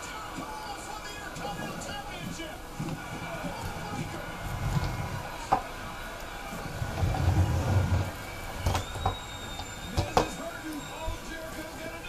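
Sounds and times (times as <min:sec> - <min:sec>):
toy buggy wheels rumbling on floor: 0:00.0 - 0:12.0.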